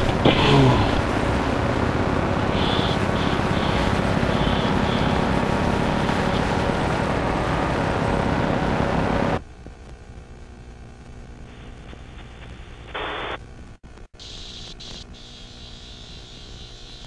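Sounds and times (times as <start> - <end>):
loud rushing static noise: 0.0 - 9.4, 10.7 - 13.4.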